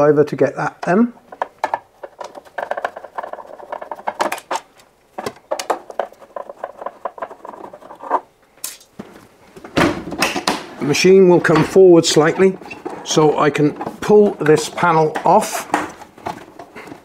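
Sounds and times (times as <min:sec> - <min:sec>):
panel being handled: 0:01.2 - 0:08.2.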